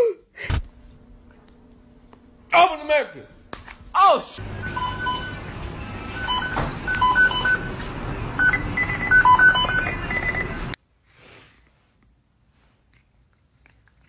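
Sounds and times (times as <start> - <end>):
rapid electronic beeps: 6.2 - 7.7, 8.4 - 10.8.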